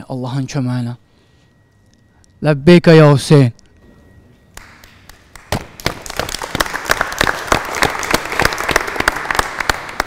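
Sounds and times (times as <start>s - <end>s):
people applauding: 4.6s - 10.0s.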